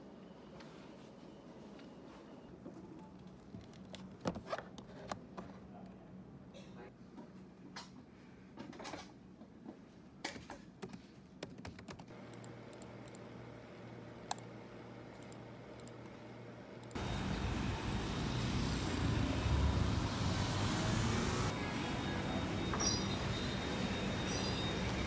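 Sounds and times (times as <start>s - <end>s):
laptop keyboard keys clicking: 10.8s - 12.5s
street traffic with cars passing: 17.0s - 25.0s.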